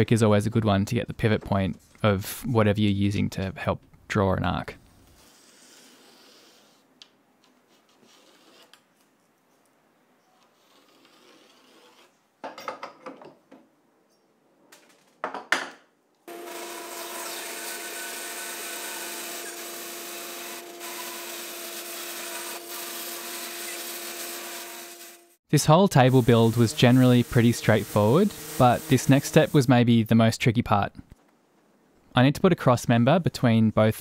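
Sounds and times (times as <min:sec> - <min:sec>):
bandsaw humming: 0:16.3 - 0:29.6.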